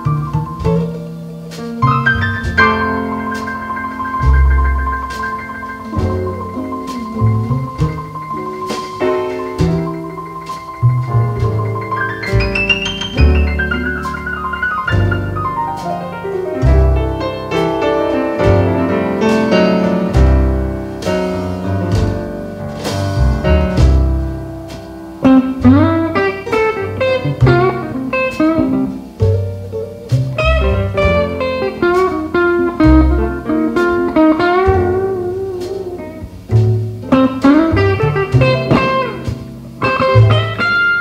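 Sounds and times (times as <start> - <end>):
bass line with steady beat: 0.0 - 40.8
blues piano: 0.0 - 41.0
electric guitar bent notes: 0.0 - 41.0.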